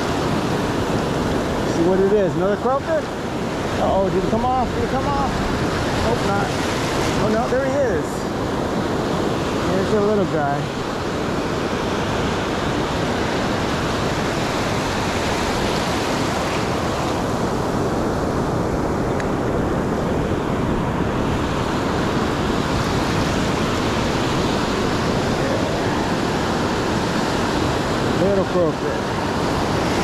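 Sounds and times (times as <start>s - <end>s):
waves breaking on a beach: 0.0s - 30.0s.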